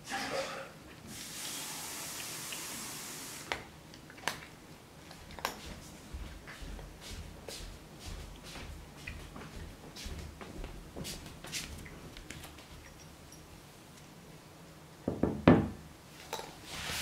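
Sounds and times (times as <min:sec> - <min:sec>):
steady hiss: 0:00.0 - 0:03.8, 0:16.0 - 0:17.0.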